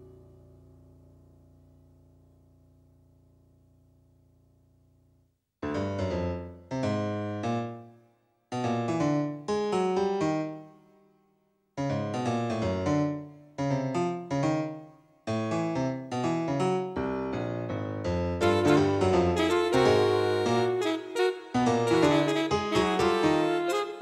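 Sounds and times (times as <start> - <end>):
piano music: 8.6 - 10.7, 11.8 - 24.0.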